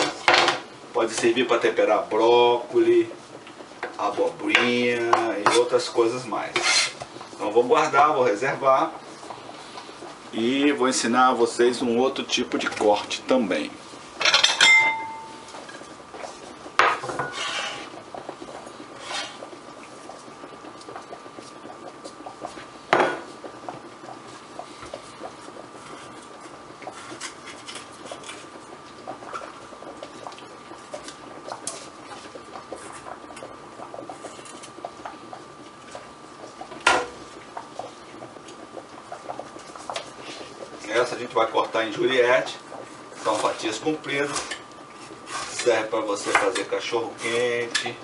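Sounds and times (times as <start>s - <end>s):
faint high hum: 3.8s - 17.4s.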